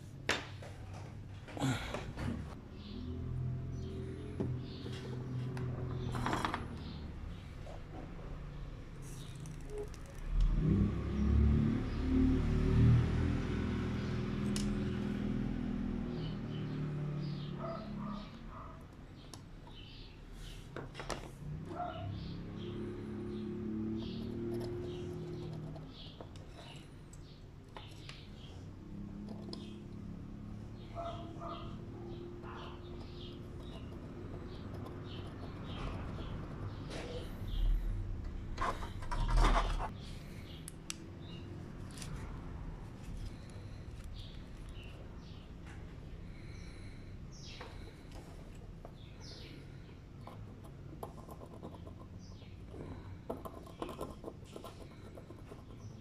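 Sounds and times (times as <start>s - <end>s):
low mechanical drone: 1.6s - 19.0s
handling rubbing and scraping: 38.4s - 40.1s.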